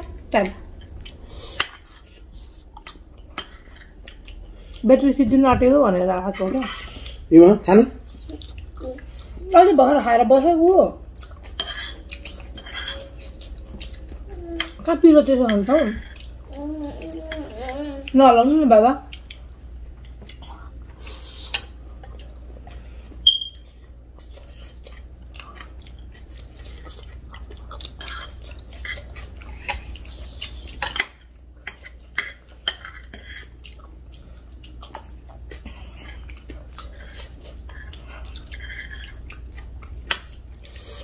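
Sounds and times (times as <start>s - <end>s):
chewing: 0.4s - 4.9s, 7.8s - 10.1s, 11.0s - 14.9s, 15.5s - 18.2s, 19.0s - 41.0s.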